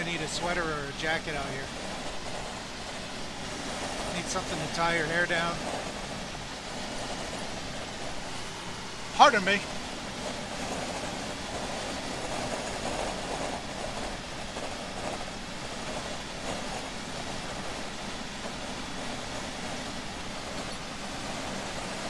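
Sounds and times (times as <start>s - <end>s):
truck road and engine noise: 0.0s - 22.0s.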